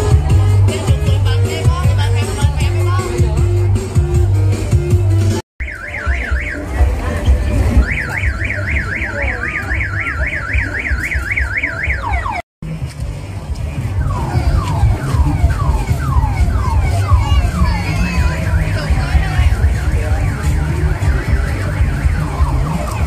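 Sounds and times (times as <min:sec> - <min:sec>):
heavy bass music thudding: 0:00.0 - 0:05.4, 0:06.0 - 0:09.4, 0:12.6 - 0:23.0
car alarm warbling and whooping: 0:05.6 - 0:06.8, 0:07.8 - 0:12.4, 0:14.0 - 0:23.0.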